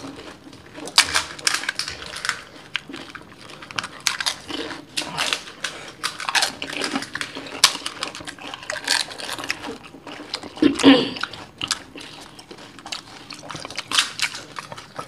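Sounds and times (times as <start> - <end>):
crisp shells crackling and crunching: 0.0 - 15.0.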